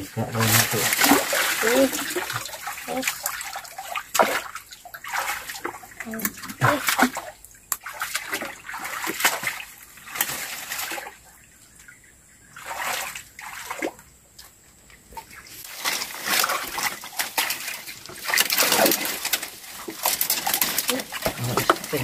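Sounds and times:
muddy water sloshing and splashing: 0.0 - 22.0.

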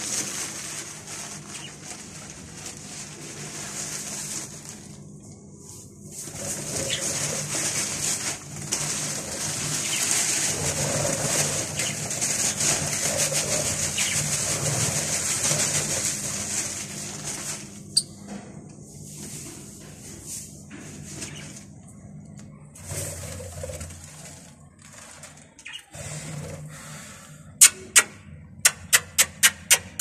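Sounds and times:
budgerigars chattering and warbling: 11.6 - 12.6, 13.9 - 14.2.

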